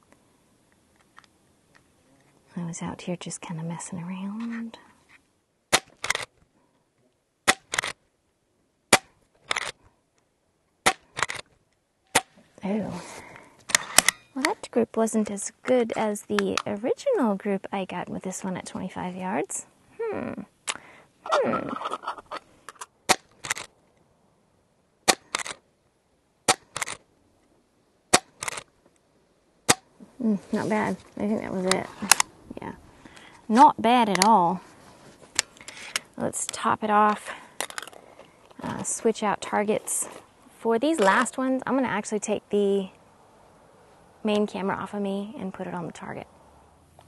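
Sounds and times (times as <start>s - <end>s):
air rifle shots: 7.4s - 8.0s.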